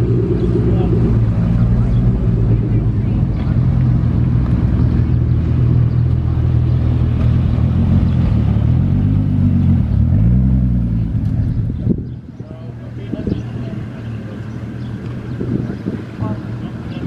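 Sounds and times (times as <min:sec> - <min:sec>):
car exhaust revving: 0:00.0 - 0:12.2.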